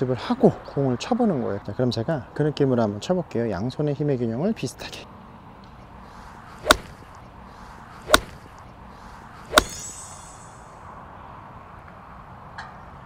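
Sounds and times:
golf iron striking ball: 0:06.6 - 0:07.2, 0:08.0 - 0:08.7, 0:09.5 - 0:10.8
brief high shimmer: 0:09.6 - 0:10.9.

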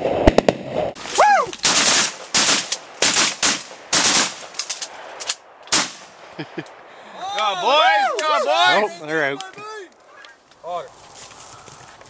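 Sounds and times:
shotgun bangs: 0:01.6 - 0:04.6, 0:05.7 - 0:06.1.

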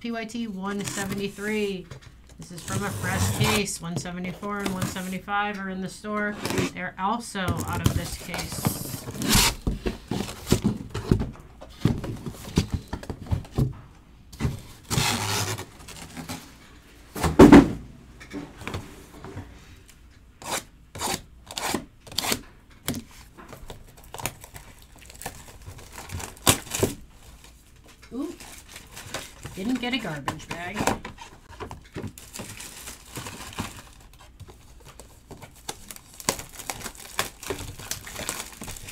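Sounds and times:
cardboard boxes scraping and knocking: 0:02.6 - 0:03.7, 0:07.5 - 0:13.7.

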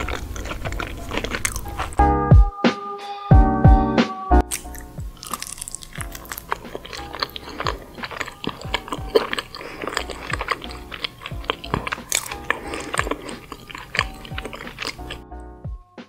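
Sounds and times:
close-miked chewing: 0:00.0 - 0:02.0, 0:04.4 - 0:15.3
faint background music: 0:00.0 - 0:16.0
mouth clicks: 0:04.4 - 0:15.2.

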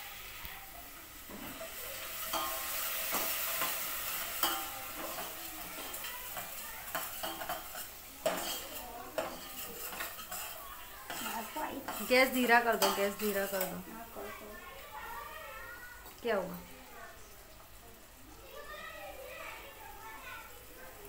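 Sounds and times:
food sizzling: 0:00.0 - 0:21.0
ladle scraping pot: 0:02.2 - 0:13.8.

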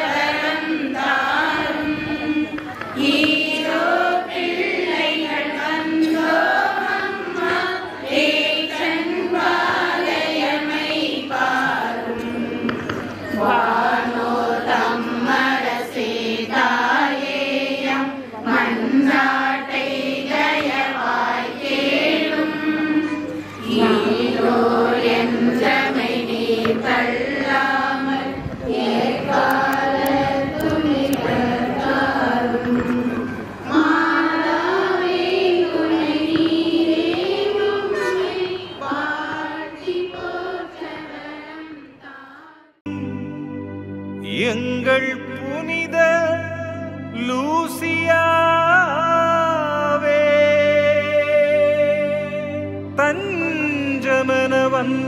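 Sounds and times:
group singing a hymn: 0:00.0 - 0:43.0.

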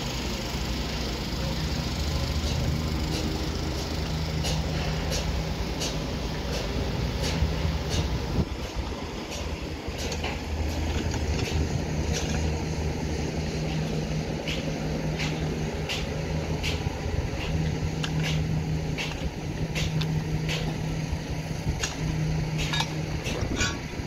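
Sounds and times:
diesel machinery drone: 0:00.0 - 0:24.0
metallic clinks of rebar: 0:14.5 - 0:20.9, 0:21.7 - 0:24.0.

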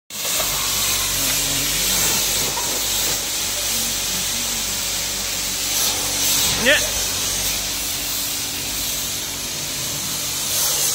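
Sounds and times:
pressure washer spraying car: 0:00.1 - 0:10.9.

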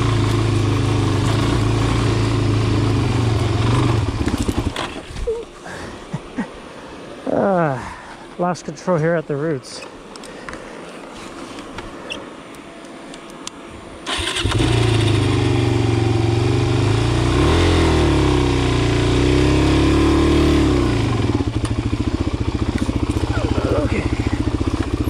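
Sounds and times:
dirt bike engine revving and idling: 0:00.0 - 0:05.0, 0:14.2 - 0:25.0.

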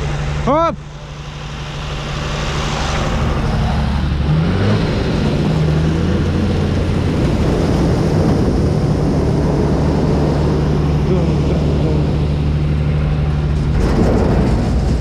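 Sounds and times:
tractor diesel engine running: 0:00.0 - 0:15.0
hopper unloading corn ears: 0:10.8 - 0:15.0.

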